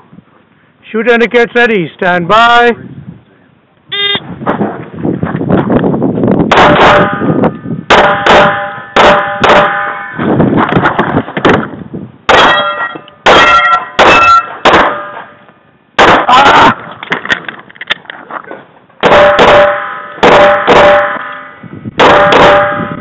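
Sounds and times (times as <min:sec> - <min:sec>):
pistol shots: 0:06.5 - 0:07.3, 0:07.9 - 0:10.2, 0:12.3 - 0:15.3, 0:16.0 - 0:16.5, 0:19.0 - 0:22.9
steel targets ringing: 0:06.7 - 0:10.3, 0:12.3 - 0:15.5, 0:19.1 - 0:23.0.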